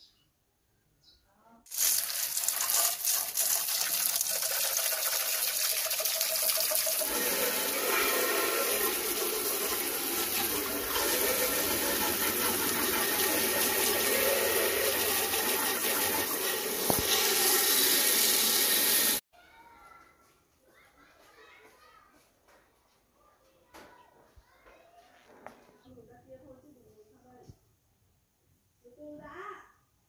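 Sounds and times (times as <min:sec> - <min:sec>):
hose water spraying on plastic: 0:01.7 - 0:19.2.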